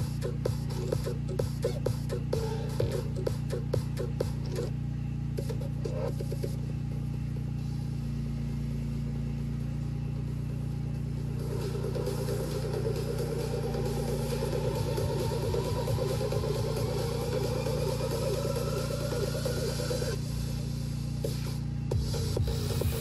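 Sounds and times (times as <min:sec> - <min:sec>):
buzzing synth: 0:00.0 - 0:23.0
low bass drone: 0:00.0 - 0:23.0.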